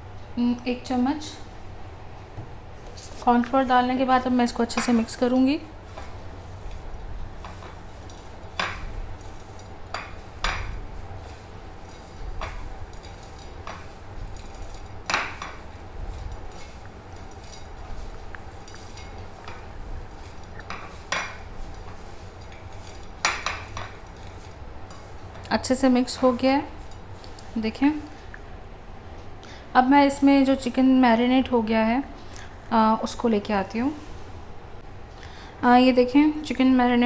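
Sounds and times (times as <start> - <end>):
pastry strips rustling: 2.8 - 28.3.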